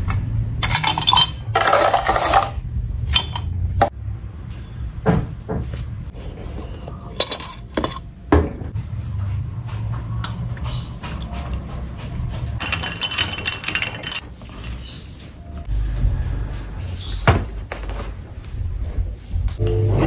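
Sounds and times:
ice and spoon clinking mug: 0:00.6 - 0:02.6, 0:12.6 - 0:14.2.

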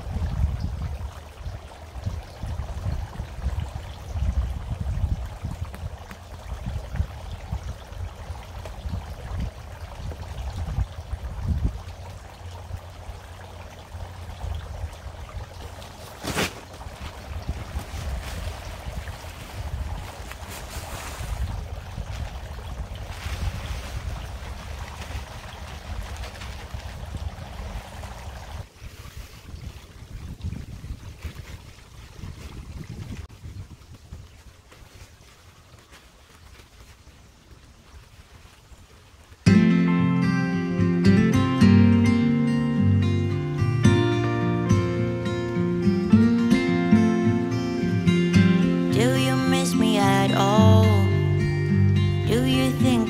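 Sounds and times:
fountain water splashing: 0:00.0 - 0:28.8, 0:29.5 - 0:53.0
wind buffeting microphone: 0:00.0 - 0:34.7
faint rustle: 0:15.6 - 0:22.4, 0:23.0 - 0:30.1, 0:30.7 - 0:39.5.

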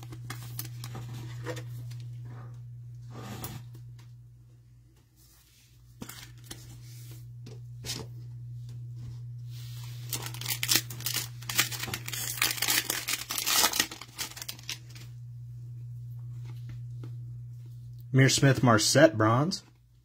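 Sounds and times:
foil wrapper tearing and crackling: 0:00.0 - 0:01.0, 0:10.0 - 0:15.0
foil wrapper crinkling: 0:00.0 - 0:01.4, 0:09.8 - 0:15.1.

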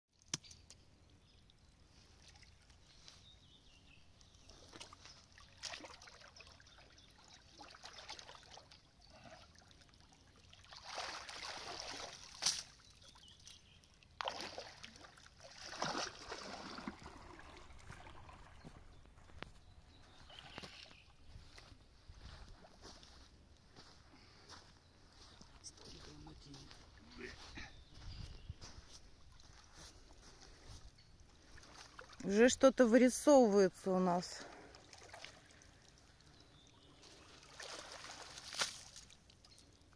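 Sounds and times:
pond water sloshing and splashing: 0:00.2 - 0:28.0, 0:28.8 - 0:39.9
rake dragged through water: 0:15.4 - 0:18.8, 0:37.0 - 0:39.2.

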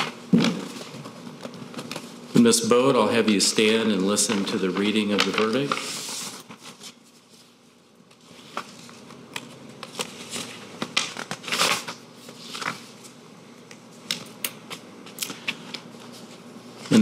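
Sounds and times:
paper rustling and crinkling: 0:00.0 - 0:13.2.

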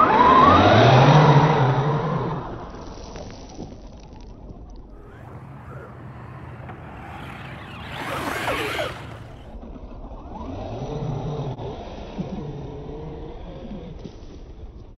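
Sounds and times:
electric motor whining: 0:05.0 - 0:09.6.

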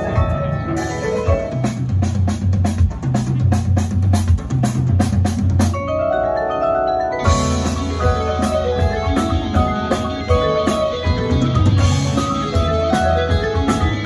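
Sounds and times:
mallet keyboards: 0:00.0 - 0:02.9, 0:05.6 - 0:14.0
low bass line: 0:00.0 - 0:03.6, 0:07.3 - 0:14.0
percussion strokes: 0:07.2 - 0:14.0.

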